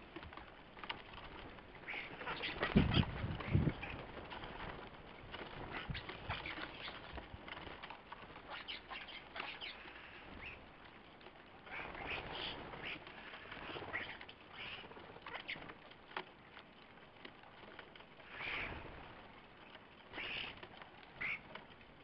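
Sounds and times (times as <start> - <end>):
wings flapping: 0.0 - 22.0
starlings chattering calls: 1.8 - 4.1, 8.5 - 10.7, 18.3 - 18.8, 21.2 - 21.5.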